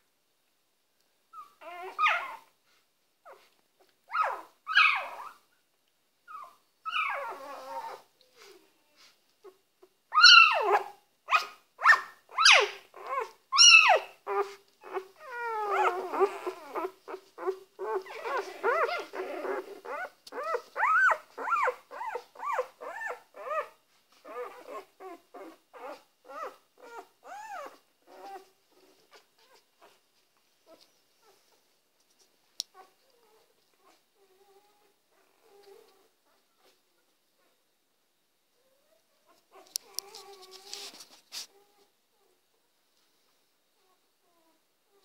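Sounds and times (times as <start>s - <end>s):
puppies crying: 10.2s - 23.7s.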